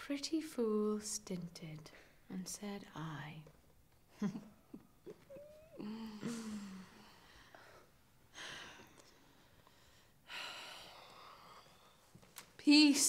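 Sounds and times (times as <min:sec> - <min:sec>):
woman laughing softly: 0:04.1 - 0:07.0.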